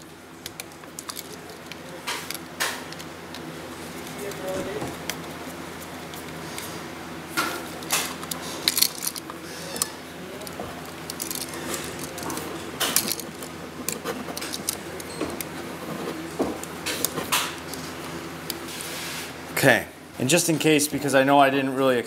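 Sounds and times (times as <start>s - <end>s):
faint steady hum: 0.0s - 22.0s
metal clicks and scrapes of wires: 7.4s - 19.1s.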